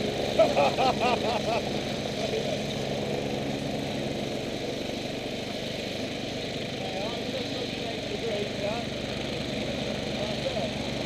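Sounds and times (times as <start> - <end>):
dirt bike engine idling: 0.0 - 11.0.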